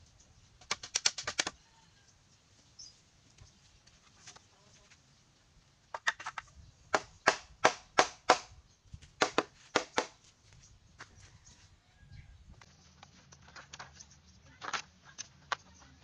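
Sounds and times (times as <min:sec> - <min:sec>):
sharp knocks on bamboo: 0:05.9 - 0:08.6, 0:09.2 - 0:10.2.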